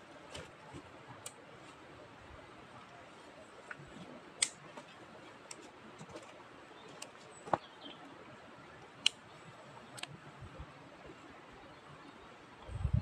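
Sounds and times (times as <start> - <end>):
campfire crackling: 0.0 - 8.0.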